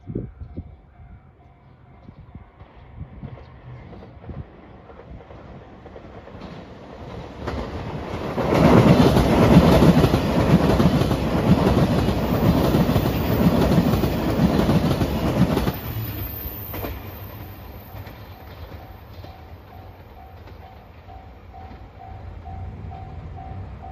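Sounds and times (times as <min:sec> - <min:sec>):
level-crossing warning bell: 0:00.0 - 0:02.8, 0:15.9 - 0:23.9
diesel train engine passing: 0:00.7 - 0:23.9.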